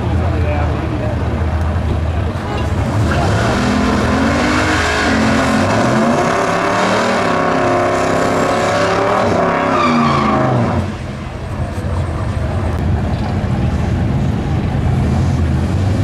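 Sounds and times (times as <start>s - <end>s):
car engine revving: 2.5s - 12.0s.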